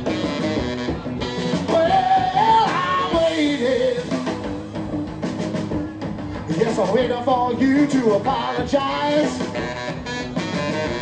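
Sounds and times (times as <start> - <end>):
rock band playing live: 0.0 - 11.0
person singing: 1.4 - 4.4, 6.4 - 9.7.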